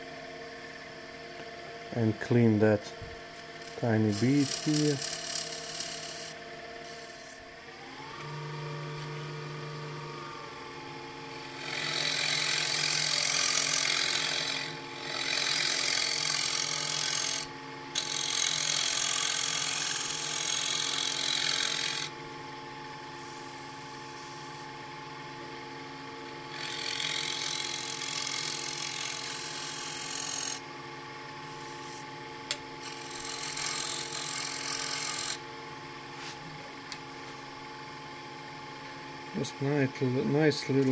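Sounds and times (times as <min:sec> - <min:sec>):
wood lathe motor whine: 0:00.0 - 0:40.9
scraper cutting spinning wood: 0:03.3 - 0:22.2, 0:22.9 - 0:24.9, 0:26.3 - 0:30.7, 0:31.4 - 0:35.4, 0:40.3 - 0:40.9.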